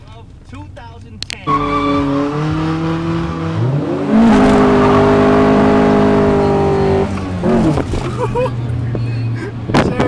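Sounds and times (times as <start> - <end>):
car engine revving hard: 1.5 - 8.4.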